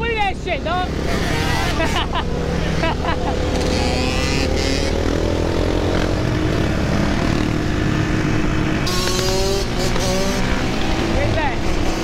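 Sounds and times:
dirt bike and quad engines: 0.0s - 12.0s.

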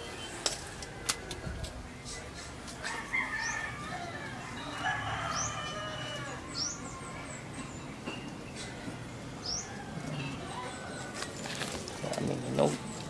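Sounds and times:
small birds chirping: 1.9s - 13.0s
rooster crowing: 2.8s - 7.0s, 9.6s - 11.6s.

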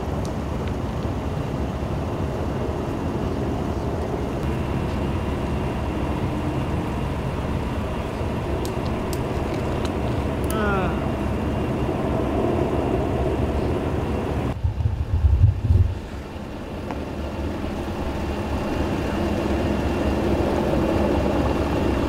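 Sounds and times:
idling vehicles rumbling: 0.0s - 22.0s
loud low rumble: 4.4s - 20.8s.

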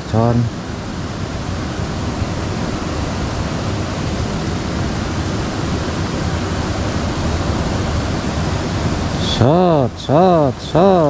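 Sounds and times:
water rushing in a ditch: 0.0s - 11.0s.

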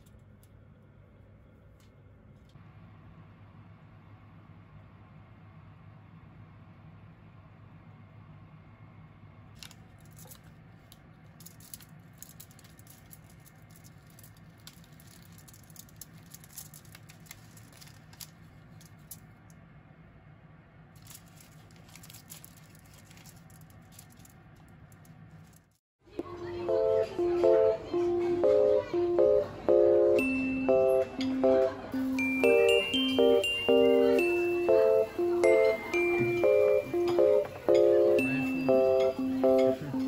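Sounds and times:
paper and foil crackling: 9.6s - 19.4s, 21.0s - 25.8s
bread tearing: 11.3s - 19.1s, 21.0s - 25.8s.

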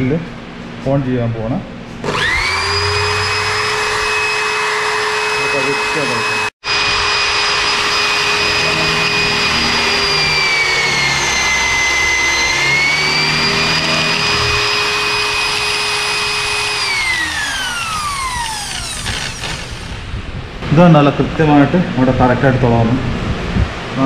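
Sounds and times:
electric drill whining: 2.0s - 20.2s.

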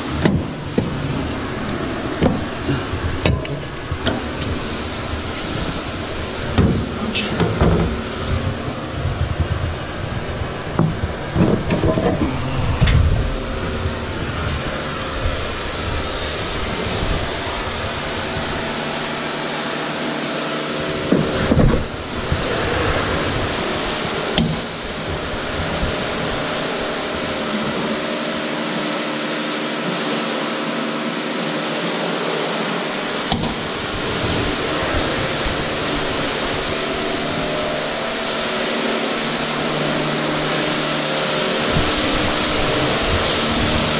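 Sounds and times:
washing equipment humming and hissing: 0.0s - 43.9s.

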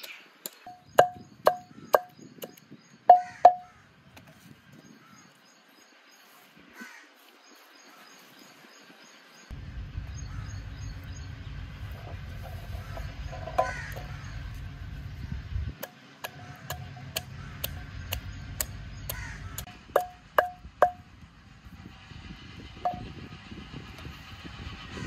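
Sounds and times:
wooden pestle knocking: 0.5s - 3.7s, 13.3s - 14.1s, 16.2s - 21.0s
crows cawing: 3.1s - 4.0s, 6.8s - 7.2s, 10.3s - 10.5s, 12.8s - 14.4s, 16.3s - 17.9s, 19.1s - 19.7s
low rumble: 9.5s - 25.0s
garlic tapping into clay mortar: 16.2s - 21.0s.

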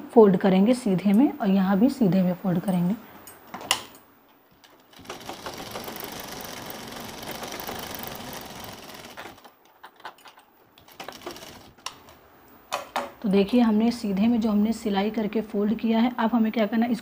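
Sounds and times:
sewing machine running: 4.8s - 9.5s, 10.9s - 11.8s.

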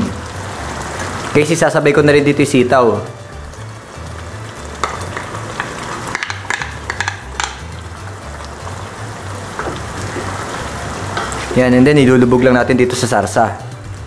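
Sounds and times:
hot pan hissing: 0.0s - 14.0s
spoon clicking against pan: 4.8s - 7.8s.

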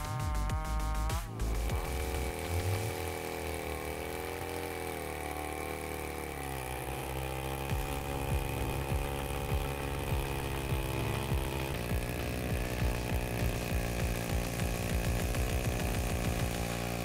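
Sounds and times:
machine engine running: 0.0s - 17.0s.

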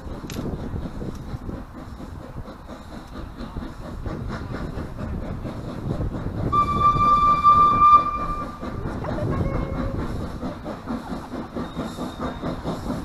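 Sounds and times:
steam locomotive exhaust rumble: 0.0s - 13.0s
steam whistle: 6.5s - 8.6s.

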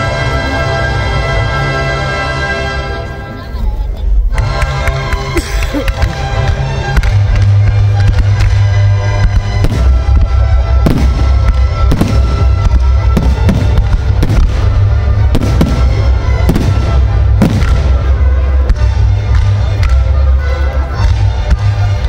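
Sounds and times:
fireworks bursting: 4.5s - 20.4s.

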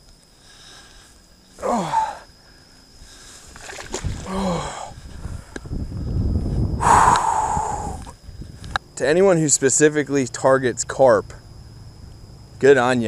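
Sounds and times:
man exhaling heavily: 1.6s - 2.3s, 4.2s - 5.6s, 6.8s - 8.1s.

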